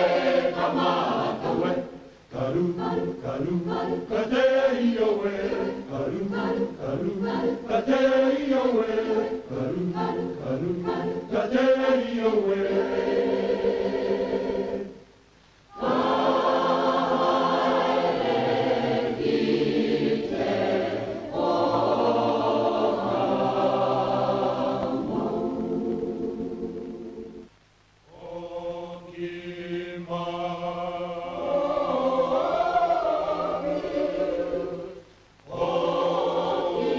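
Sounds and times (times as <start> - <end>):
choir singing: 0.0 - 15.0, 15.7 - 27.5, 28.1 - 36.9.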